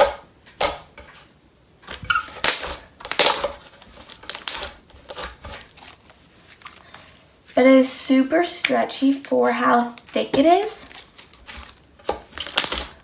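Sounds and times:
slime squishing by hand: 1.8 - 7.4, 9.9 - 13.0.

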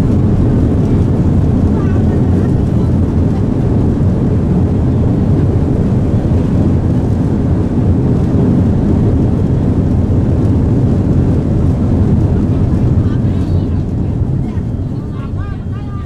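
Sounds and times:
jet engine noise: 0.0 - 16.0
wheels rumbling on pavement: 0.0 - 16.0.

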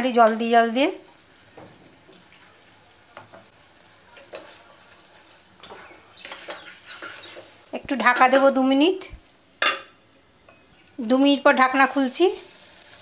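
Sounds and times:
faint sizzle: 0.0 - 13.0
wooden spatula scraping pan: 4.1 - 8.6, 11.7 - 13.0.

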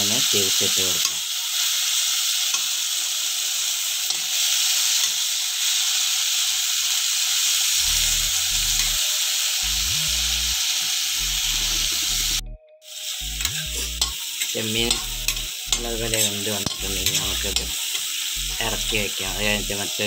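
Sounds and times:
prawns sizzling in hot oil: 0.0 - 20.0
steel spatula stirring: 13.4 - 17.8.

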